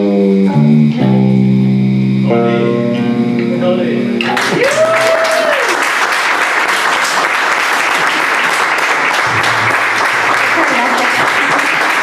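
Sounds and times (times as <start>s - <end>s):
audience applause: 4.4s - 12.0s.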